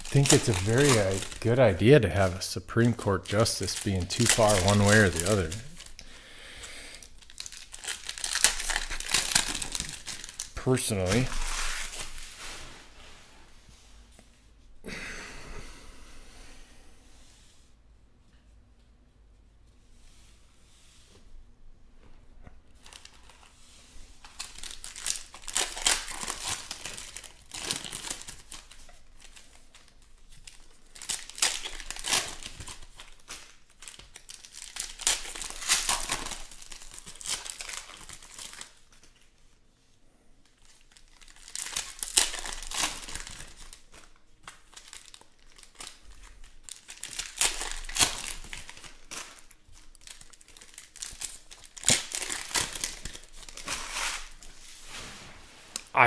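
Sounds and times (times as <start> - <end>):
foil wrappers tearing and crinkling: 0.0 - 6.2, 7.0 - 12.4, 22.8 - 23.5, 24.2 - 39.3, 40.5 - 54.9.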